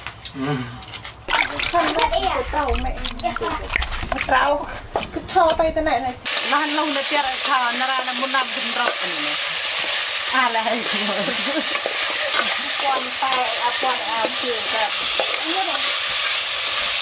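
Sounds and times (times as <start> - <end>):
food sizzling in a pan: 6.2 - 17.0.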